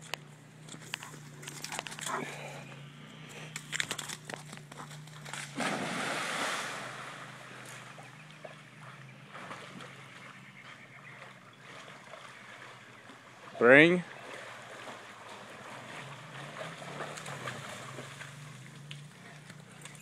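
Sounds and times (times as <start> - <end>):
dog swimming sloshing: 0.4 - 20.0
dog splashing into water: 5.2 - 10.3, 11.2 - 18.8.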